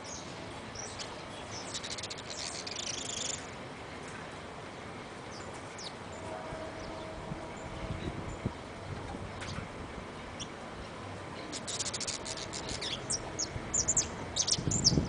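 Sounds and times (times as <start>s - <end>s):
finch buzzy chirr: 0.8s - 3.5s, 11.4s - 15.0s.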